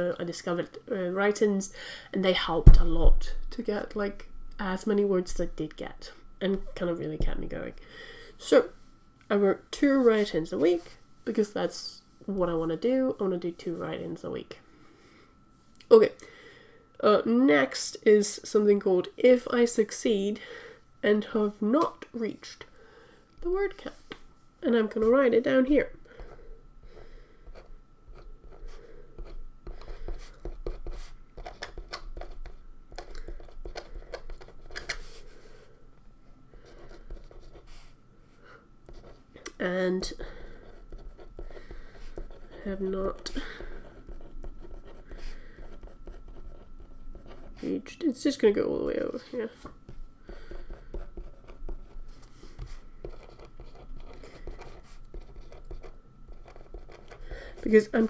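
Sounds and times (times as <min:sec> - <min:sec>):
pen scratching on paper: 0:27.5 - 0:35.2, 0:36.6 - 0:37.8, 0:40.6 - 0:47.7, 0:50.4 - 0:58.0.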